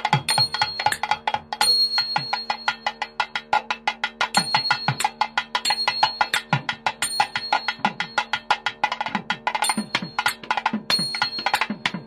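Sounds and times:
rapid drum strokes: 0.0 - 12.0
bell-like ringing tone: 0.3 - 3.3, 4.4 - 8.6, 9.6 - 12.0.

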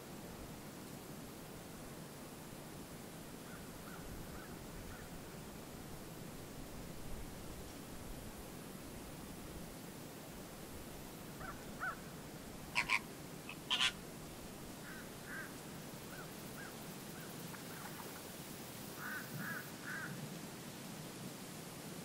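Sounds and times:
flamingos calling: 12.7 - 14.0.

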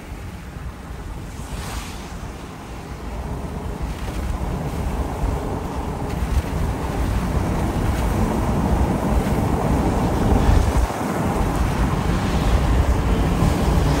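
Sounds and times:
storm wind buffeting microphone: 0.0 - 14.0.

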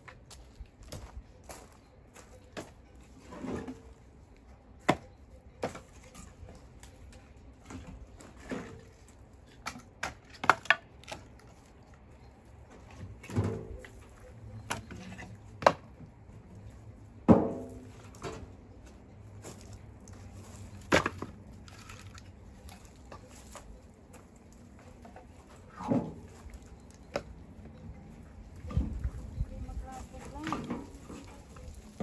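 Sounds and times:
firewood logs knocking together: 4.8 - 11.6, 14.6 - 16.0, 20.7 - 23.6.

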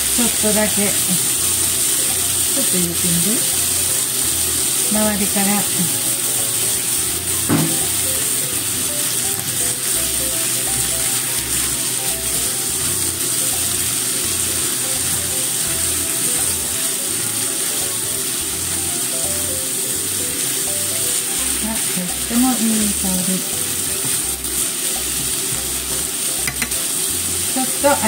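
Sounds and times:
soft background music: 0.0 - 28.0
vegetables sizzling in a frying pan: 0.0 - 28.0
knock: 7.5 - 7.9.

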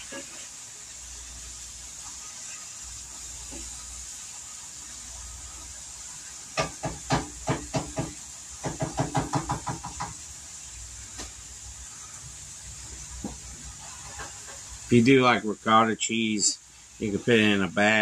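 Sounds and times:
steady hiss: 0.0 - 18.0
utensil knocking against pan: 6.6 - 10.2.

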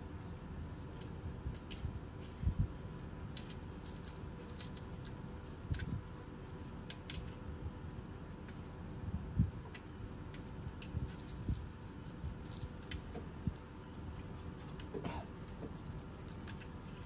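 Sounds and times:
cat claws clicking and scratching: 0.9 - 6.0, 6.8 - 7.4, 9.7 - 17.0.

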